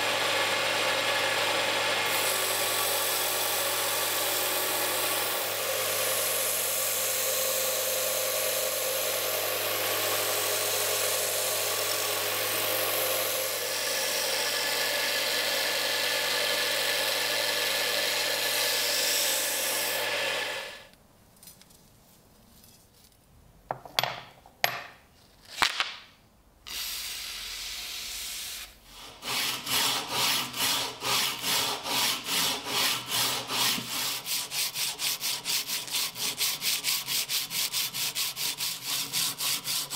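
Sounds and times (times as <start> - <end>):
blade grinding on belt sander: 0.0 - 20.8, 29.1 - 39.9.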